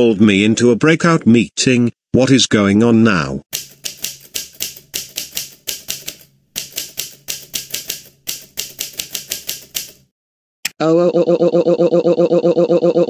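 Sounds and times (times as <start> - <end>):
keyboard typing: 3.5 - 10.1.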